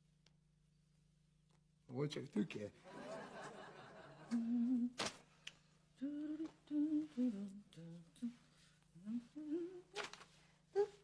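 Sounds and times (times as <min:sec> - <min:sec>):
woman humming: 0:04.3 - 0:05.0, 0:06.0 - 0:08.4, 0:09.0 - 0:10.1, 0:10.7 - 0:11.0.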